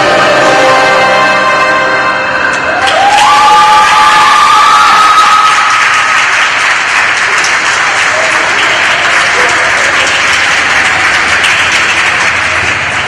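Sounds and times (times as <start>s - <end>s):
held music note: 0.0s - 3.0s
audience applauding: 2.7s - 13.0s.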